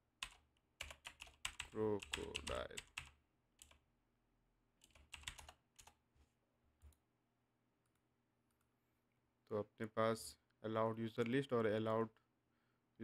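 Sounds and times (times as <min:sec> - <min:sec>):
computer keyboard keystrokes: 0:04.8 - 0:06.0.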